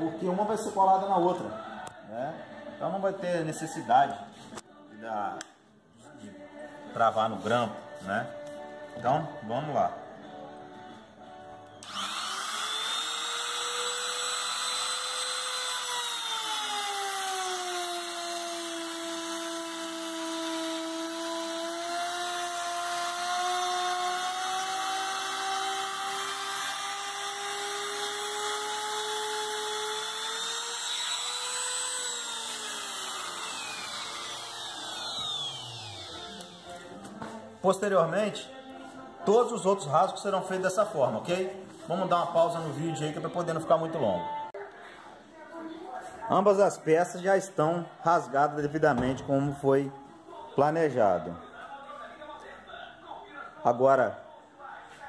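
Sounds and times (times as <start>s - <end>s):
router motor cutting wood: 11.8s - 36.8s.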